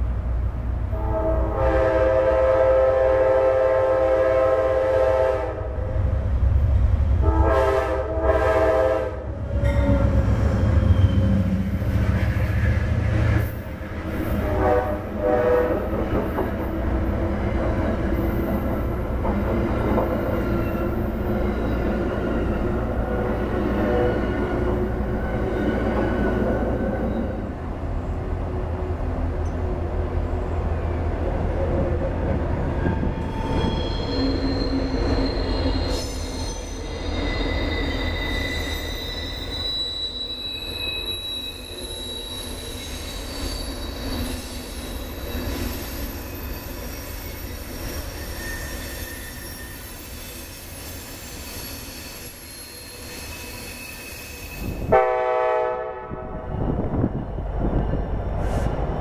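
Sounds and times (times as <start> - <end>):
diesel locomotive engine rumble: 0.0 - 51.3, 54.5 - 59.0
diesel locomotive horn: 0.9 - 6.0, 7.2 - 10.2, 14.1 - 16.2, 54.6 - 56.5
train wheels squealing on rails: 8.3 - 28.3, 31.8 - 55.2, 56.3 - 59.0.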